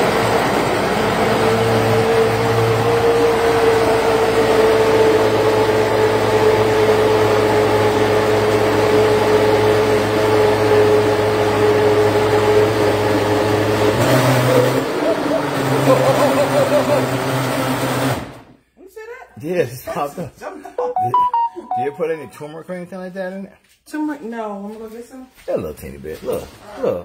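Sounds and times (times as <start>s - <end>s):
blender whirring: 0.0s - 18.5s.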